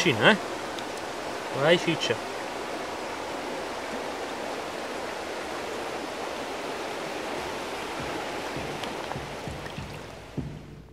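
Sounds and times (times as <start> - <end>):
stream water rushing: 0.0 - 10.9
faint low knocks: 7.4 - 10.9.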